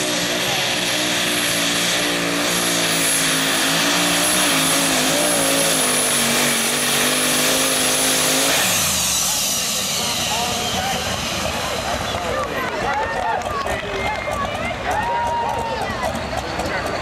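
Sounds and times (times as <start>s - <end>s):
high engine whine: 0.0s - 17.0s
truck engine running under load: 0.0s - 17.0s.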